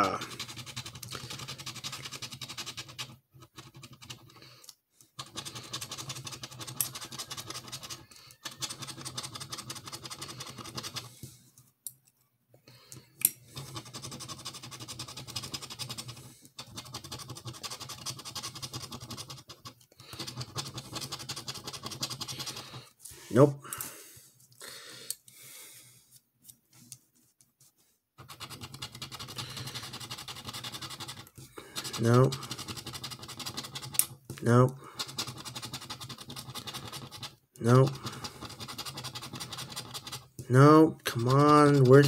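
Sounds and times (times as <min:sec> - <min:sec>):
metal tool scratching a card: 0:00.2 - 0:04.4, 0:05.2 - 0:11.2, 0:13.5 - 0:22.8, 0:28.2 - 0:34.2, 0:34.9 - 0:40.4, 0:41.0 - 0:42.0.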